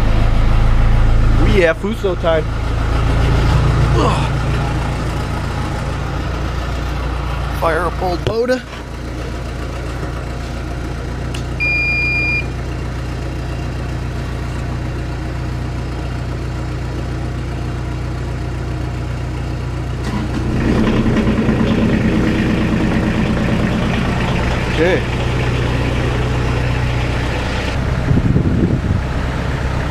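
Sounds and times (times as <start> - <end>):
diesel engine cranking and starting: 0.0 - 29.9
low engine idle hum: 0.0 - 29.9
short electronic beep: 11.6 - 12.6.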